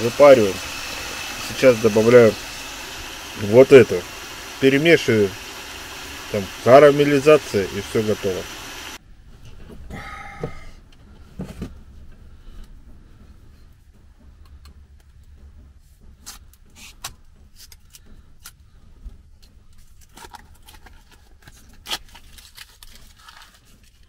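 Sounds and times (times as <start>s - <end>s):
low hum: 0.0s - 16.2s
foil crinkling and clicking: 19.7s - 24.0s.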